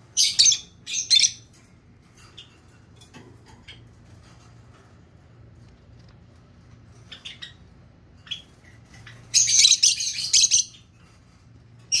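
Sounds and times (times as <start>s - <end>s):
lovebird chirping and calling: 0.0s - 1.6s, 6.9s - 11.0s.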